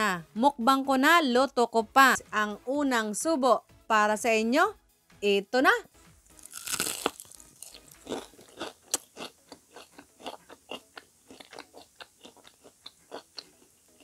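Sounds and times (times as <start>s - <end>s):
crunchy chewing: 6.2s - 14.0s
crunchy bite: 6.3s - 14.0s.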